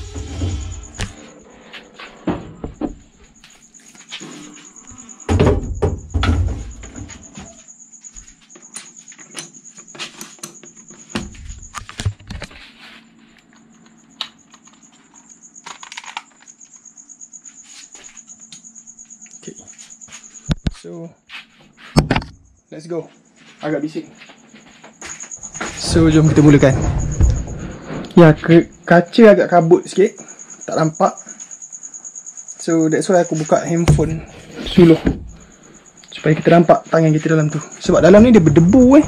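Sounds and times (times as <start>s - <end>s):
cabinet knocks and clunks: 2.2s - 3.1s, 5.3s - 7.3s, 33.8s - 35.4s, 37.9s - 39.0s.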